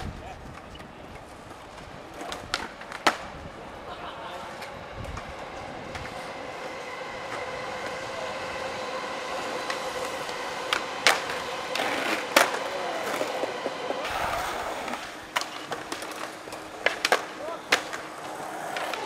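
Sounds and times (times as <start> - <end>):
skateboard wheels rolling on concrete: 0.0 - 19.0
skateboard popping and landing: 11.1 - 19.0.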